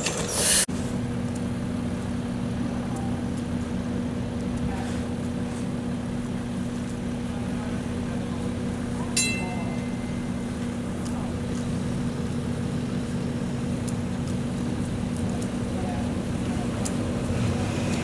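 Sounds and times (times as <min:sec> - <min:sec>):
streetcar and traffic hum: 0:00.0 - 0:18.0
constant low tone: 0:05.8 - 0:17.0
metallic clang: 0:09.2 - 0:10.3.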